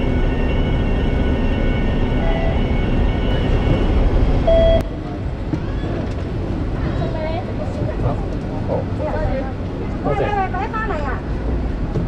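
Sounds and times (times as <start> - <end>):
tram rumbling with faint whine: 0.0 - 12.0.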